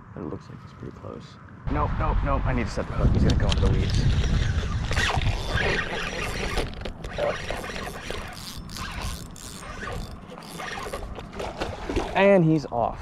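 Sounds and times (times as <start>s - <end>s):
low rumble on microphone: 1.6s - 6.4s
fishing reel clicks and rattles: 3.6s - 11.3s.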